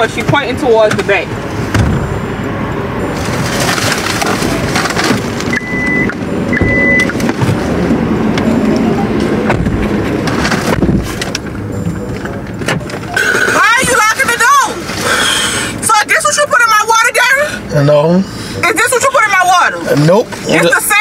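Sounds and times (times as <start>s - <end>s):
car cabin rumble: 0.0s - 17.4s
rummaging and knocking in car: 3.1s - 15.3s
short electronic beeps: 5.5s - 7.2s.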